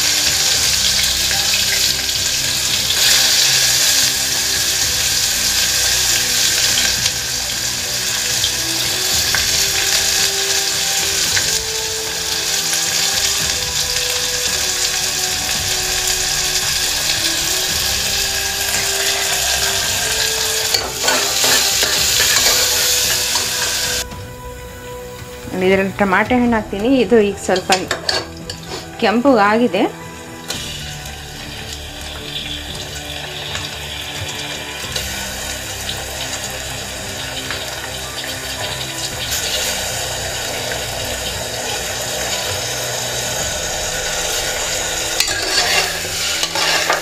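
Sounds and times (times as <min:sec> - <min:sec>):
onions sizzling in hot oil: 0:00.0 - 0:24.2, 0:24.8 - 0:47.0
spoon scraping a pot: 0:18.6 - 0:24.0, 0:45.0 - 0:47.0.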